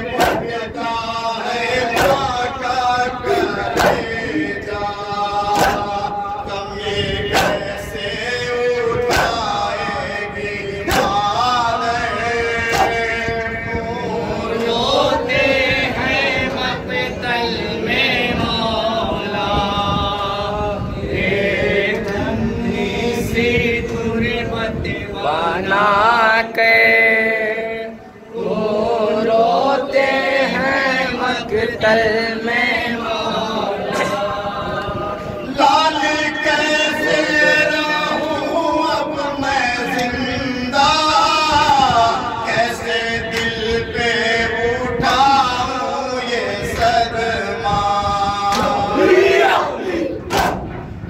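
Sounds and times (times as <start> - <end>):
men chanting in unison: 0.0 - 50.7
hands slapping chests: 0.2 - 0.5, 2.0 - 2.3, 3.7 - 4.1, 5.5 - 6.0, 7.3 - 7.7, 9.1 - 9.5, 10.9 - 11.2, 12.7 - 13.0, 50.3 - 50.6.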